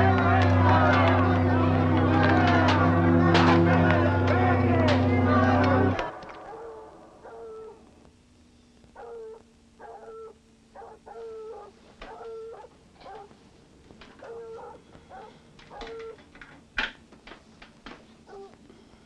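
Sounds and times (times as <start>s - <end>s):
dog whimpering and howling: 6.4s - 7.9s, 9.0s - 13.3s, 14.2s - 16.2s, 18.3s - 18.6s.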